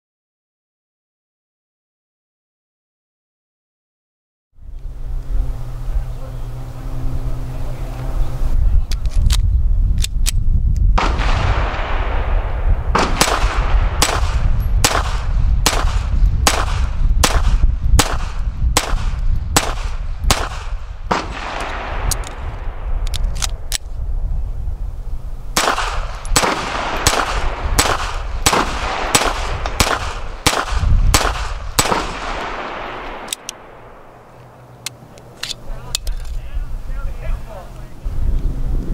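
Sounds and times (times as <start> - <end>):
low rumble: 4.6 - 38.9
suppressed pistol shots: 11.0 - 23.8, 25.6 - 34.3.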